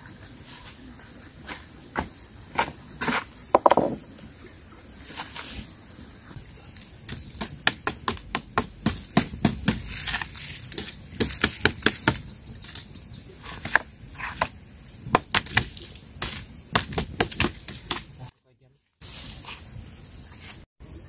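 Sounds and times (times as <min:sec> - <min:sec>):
burning sticks knocking: 0:03.6 - 0:04.0
campfire crackling and popping: 0:06.3 - 0:12.9, 0:14.4 - 0:18.3.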